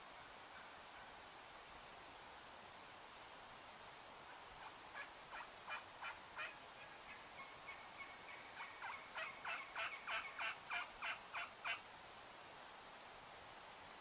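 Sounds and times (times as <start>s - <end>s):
turkey yelps: 5.0s - 7.5s, 8.3s - 11.8s.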